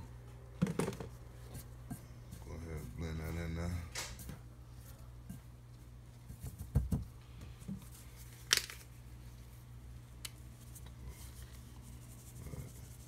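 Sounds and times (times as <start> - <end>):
low steady hum: 0.0 - 13.0
dull thumps: 6.3 - 7.8.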